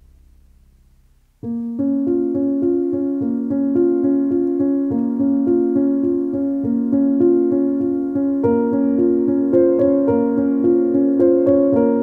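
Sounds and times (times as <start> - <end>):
piano-like keyboard music: 1.4 - 12.0.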